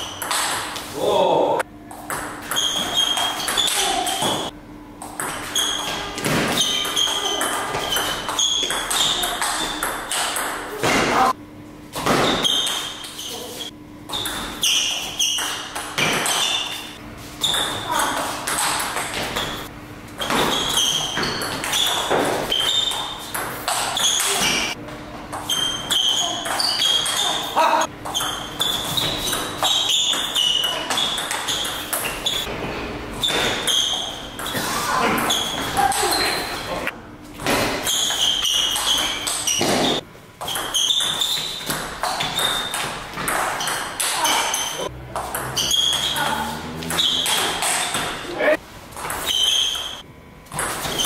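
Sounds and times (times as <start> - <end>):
table tennis ball pings: 5.1 - 11.0, 25.4 - 32.5, 37.9 - 48.3.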